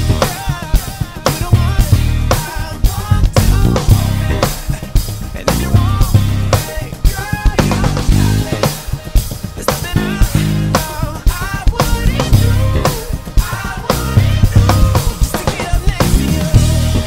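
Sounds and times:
acoustic drum kit groove: 0:00.0 - 0:17.0
electric bass guitar: 0:00.0 - 0:17.0.

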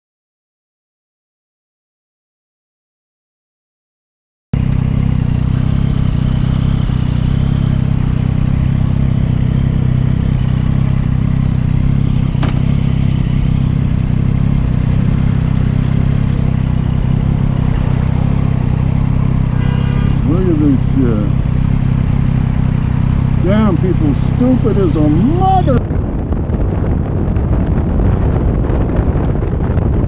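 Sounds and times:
motorcycle engine idling: 0:04.6 - 0:25.8.

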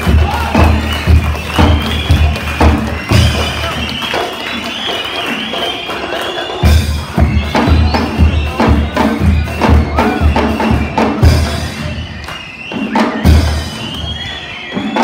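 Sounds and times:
bass drums beating: 0:00.0 - 0:04.0, 0:06.6 - 0:12.2.

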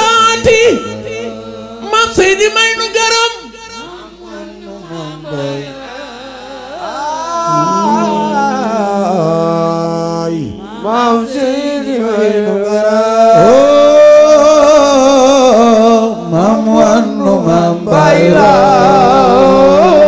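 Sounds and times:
man chanting into a microphone: 0:00.0 - 0:20.0
steady low drone: 0:14.8 - 0:20.0.

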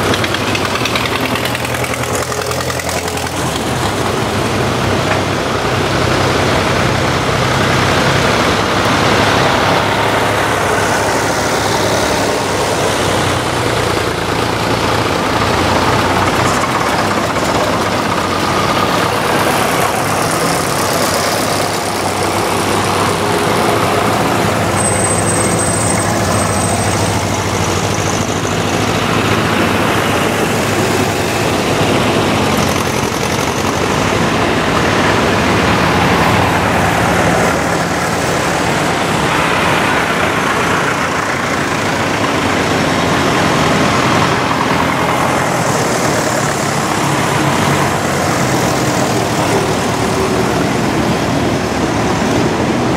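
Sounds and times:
tractors driving past: 0:00.0 - 0:52.9.

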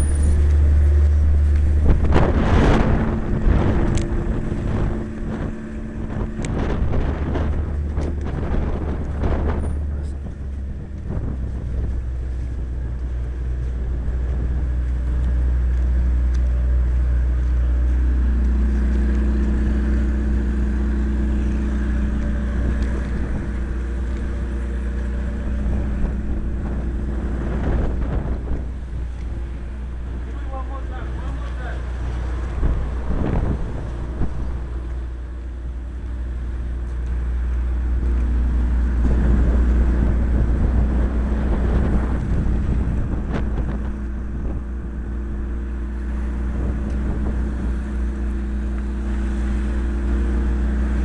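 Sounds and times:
vehicle engine humming: 0:00.0 - 0:51.0.

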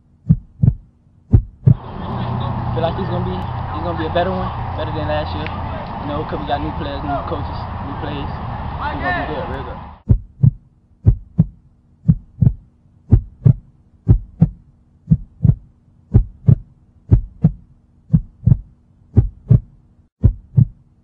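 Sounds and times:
heartbeat thumps: 0:00.2 - 0:01.8, 0:10.0 - 0:20.8.

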